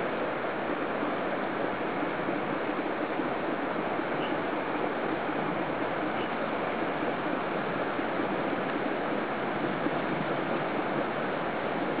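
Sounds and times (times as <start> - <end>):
strong wind blowing: 6.6 - 12.0.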